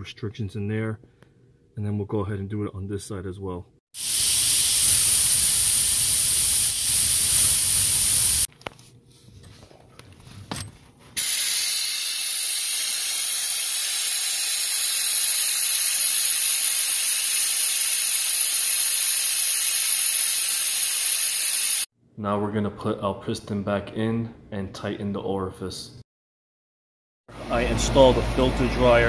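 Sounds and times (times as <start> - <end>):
nitrogen blow gun hissing: 4.0 - 8.5, 11.2 - 21.9.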